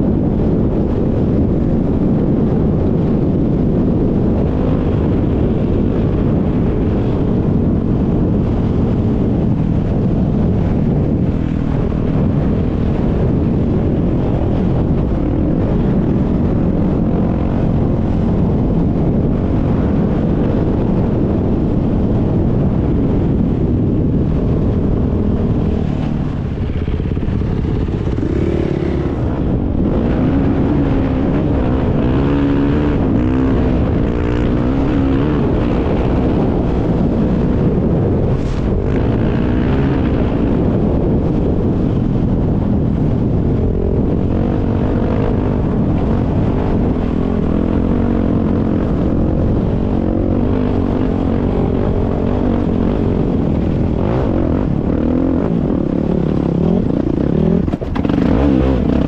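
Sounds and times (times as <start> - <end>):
dirt bike engine revving: 24.3 - 59.0.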